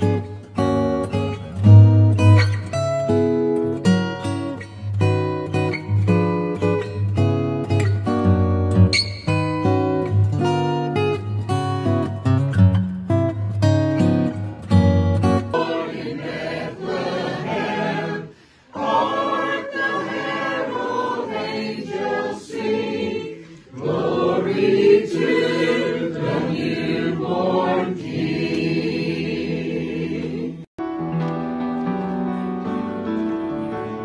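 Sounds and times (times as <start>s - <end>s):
group singing a carol: 15.3s - 30.7s.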